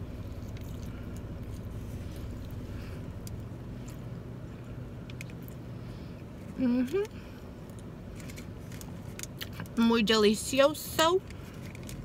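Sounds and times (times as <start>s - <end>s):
person chewing: 0.0s - 5.7s
car idling hum: 0.0s - 12.0s.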